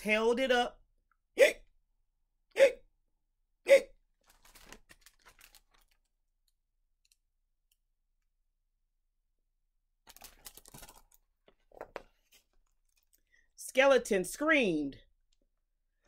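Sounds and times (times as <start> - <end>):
paper pages rustling: 4.2 - 6.1, 10.1 - 13.2.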